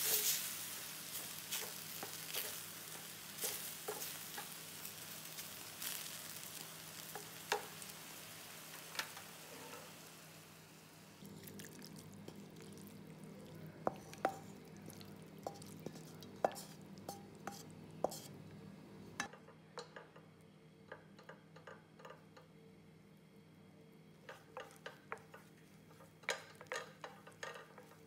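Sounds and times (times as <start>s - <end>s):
faint sizzle: 0.0s - 28.0s
utensil clinking on pan and bowl: 13.9s - 18.2s, 24.3s - 28.0s.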